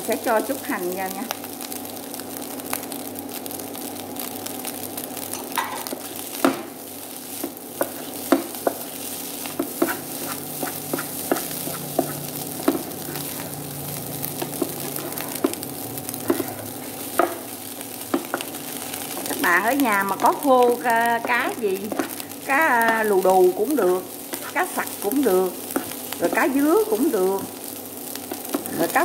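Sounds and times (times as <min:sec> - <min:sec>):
fried rice sizzling: 0:00.0 - 0:29.0
spatula tapping and scraping pan: 0:07.4 - 0:13.5, 0:14.4 - 0:15.6, 0:16.2 - 0:17.4, 0:18.1 - 0:18.6, 0:21.2 - 0:22.2.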